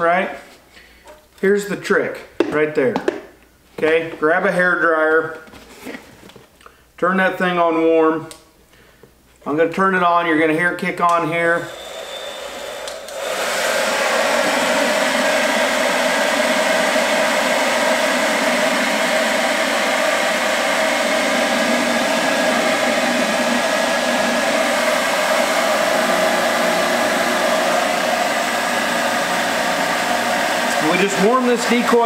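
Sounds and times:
hair dryer blowing: 11.1s - 32.0s.

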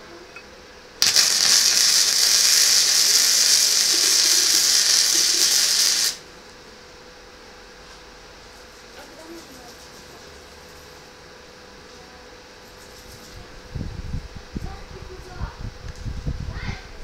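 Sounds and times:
welding arc hissing: 1.0s - 6.3s.

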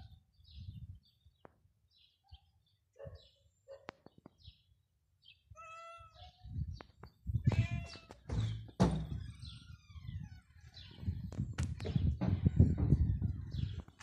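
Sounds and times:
cat meowing: 5.5s - 6.4s, 7.4s - 8.2s.

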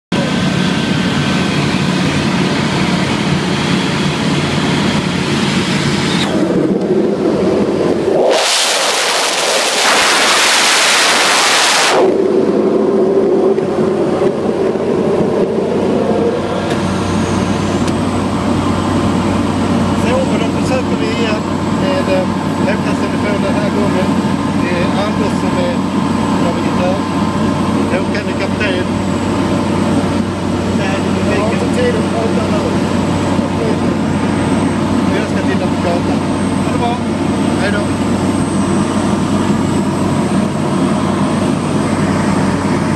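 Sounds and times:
light aircraft engine droning: 0.1s - 42.9s
wind rushing over microphone: 0.6s - 20.6s.

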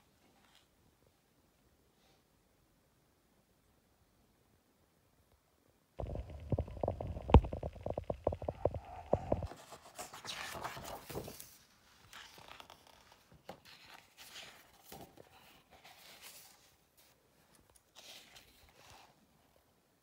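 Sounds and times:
page turning rustle: 6.0s - 19.2s
faint scratching of paper: 8.6s - 19.7s.

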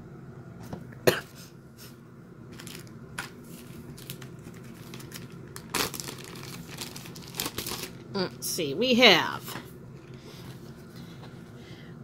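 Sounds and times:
packaging crinkling: 2.5s - 8.1s.

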